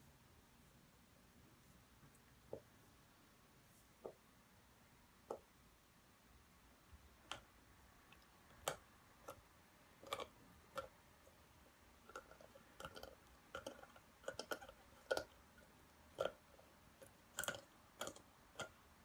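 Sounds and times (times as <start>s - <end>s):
dog teeth clicking on ball: 10.0s - 10.9s, 12.0s - 15.4s, 17.0s - 18.8s.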